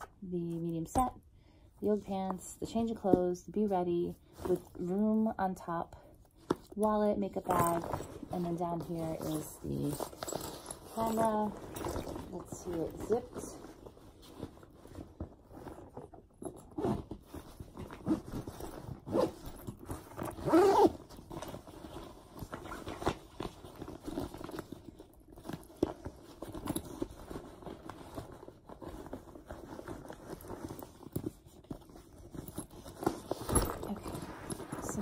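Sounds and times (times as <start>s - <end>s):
fabric rustling: 6.4s - 35.0s
zipper being drawn closed: 17.9s - 21.1s.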